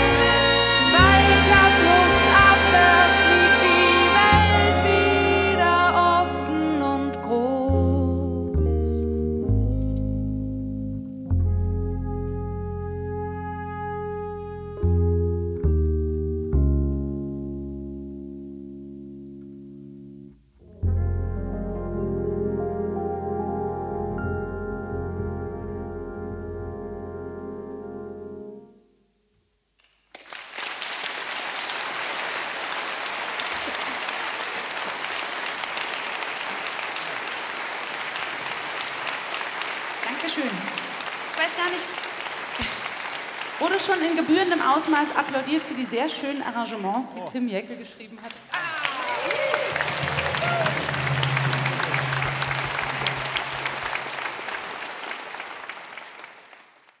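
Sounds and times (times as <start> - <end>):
keyboard chord: 0.0 - 29.3, 49.9 - 54.3
audience applause: 30.1 - 46.8, 48.2 - 57.0.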